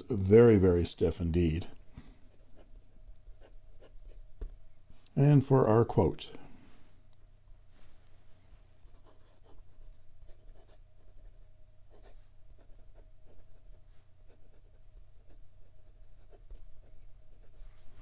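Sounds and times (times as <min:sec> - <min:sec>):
pen nib scratching on paper: 0:08.9 - 0:17.7.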